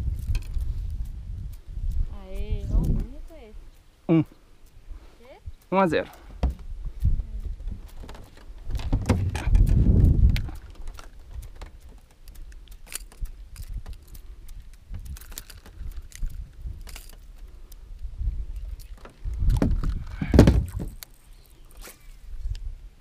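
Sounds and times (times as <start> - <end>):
low bumping: 6.3 - 11.8
fishing tackle clicking: 10.3 - 17.8.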